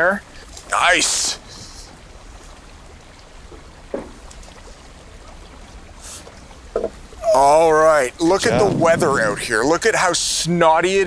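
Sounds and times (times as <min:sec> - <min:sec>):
flowing river water: 0:00.0 - 0:11.0
low wind rumble: 0:07.2 - 0:10.1.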